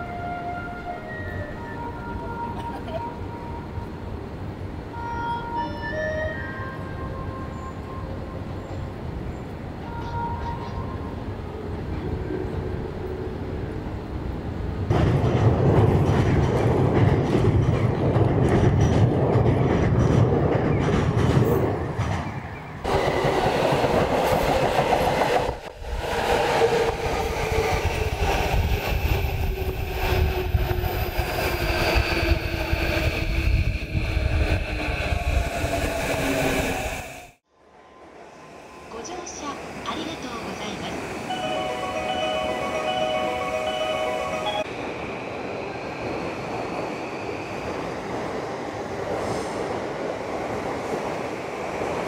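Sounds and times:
city street noise: 0:00.0 - 0:52.0
train rumbling over rail bridge: 0:00.0 - 0:52.0.

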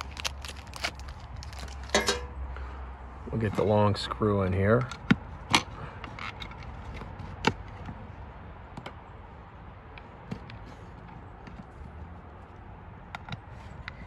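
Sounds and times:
hands handling plastic clicks: 0:00.0 - 0:02.3.

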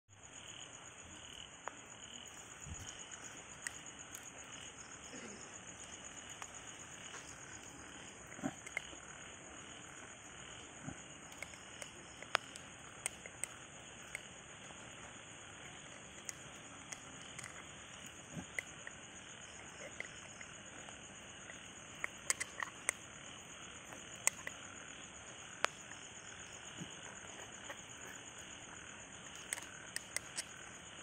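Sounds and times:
insects trilling: 0:00.1 - 0:31.0
frog calls: 0:01.2 - 0:31.0
sharp clicks: 0:08.3 - 0:09.0, 0:11.3 - 0:14.3, 0:21.4 - 0:23.1, 0:23.9 - 0:24.6, 0:29.2 - 0:30.7.

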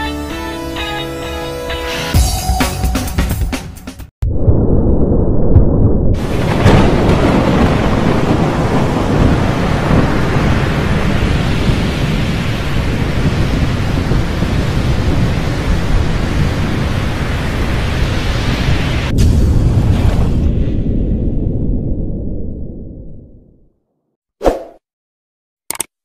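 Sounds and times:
thunder rumble: 0:04.2 - 0:23.7.

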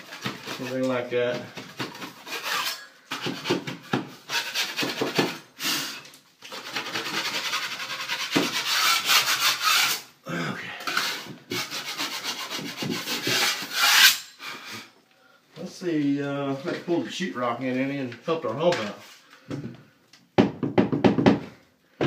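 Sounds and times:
knife scraping drywall: 0:00.0 - 0:10.1, 0:10.9 - 0:14.9.

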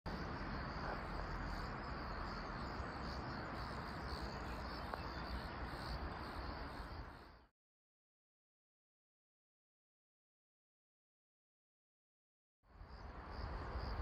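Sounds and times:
crickets chirring: 0:00.1 - 0:07.5, 0:12.7 - 0:14.0.

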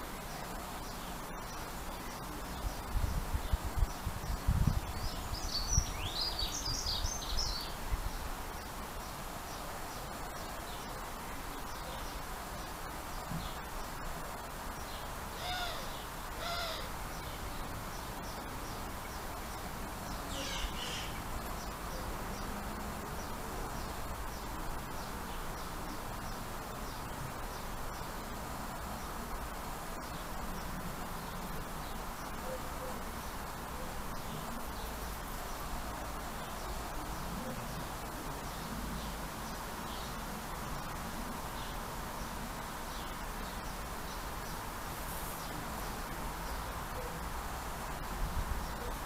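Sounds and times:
steady background hiss: 0:00.0 - 0:49.0
wild birds calling: 0:15.3 - 0:17.6, 0:20.1 - 0:22.5.

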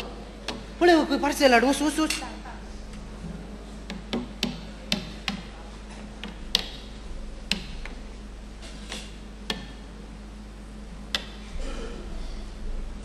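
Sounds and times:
sharp clicks and knocks: 0:00.0 - 0:00.7, 0:03.8 - 0:08.1, 0:08.8 - 0:09.9, 0:11.1 - 0:11.4
low electrical hum: 0:00.0 - 0:13.0.

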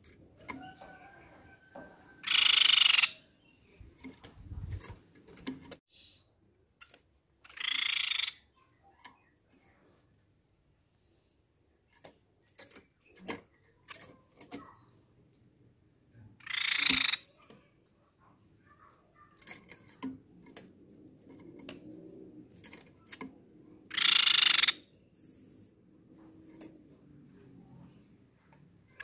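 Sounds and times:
bird rattling calls: 0:02.2 - 0:03.2, 0:16.4 - 0:17.5, 0:23.9 - 0:24.8
clicks and taps from cage: 0:03.9 - 0:05.8, 0:11.9 - 0:14.8, 0:19.2 - 0:21.9, 0:22.5 - 0:23.4, 0:26.2 - 0:26.8.

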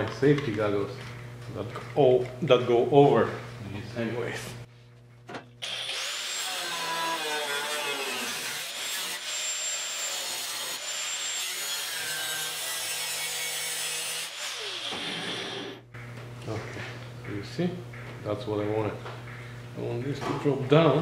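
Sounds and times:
angle grinder cutting sheet steel: 0:05.6 - 0:15.8.

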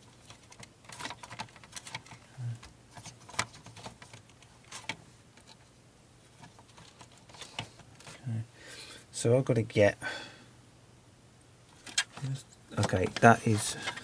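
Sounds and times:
plastic and metal parts clicking: 0:00.2 - 0:05.6, 0:11.8 - 0:14.0.

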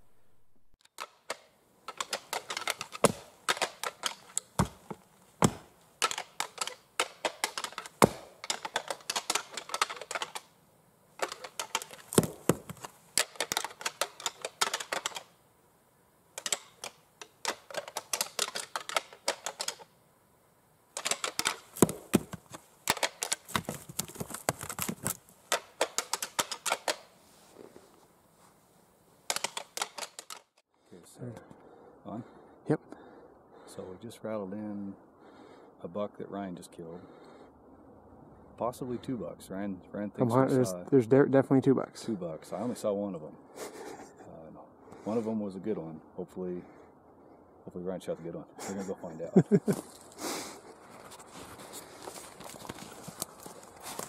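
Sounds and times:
antlers clashing together: 0:01.0 - 0:10.5, 0:11.2 - 0:15.3, 0:16.4 - 0:19.9, 0:21.0 - 0:27.1, 0:29.3 - 0:30.5.

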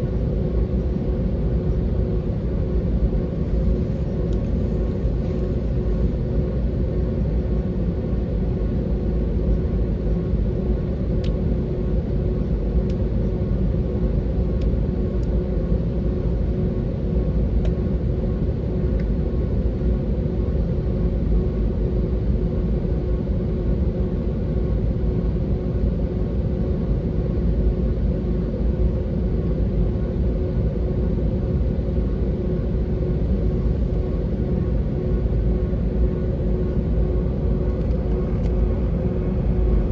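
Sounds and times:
airliner cabin rumble: 0:00.0 - 0:39.9.

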